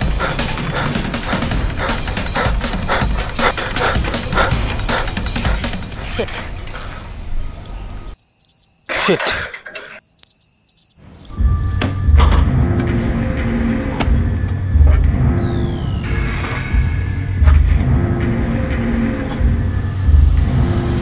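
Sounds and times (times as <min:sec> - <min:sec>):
crickets chirping: 0:00.0 - 0:20.9.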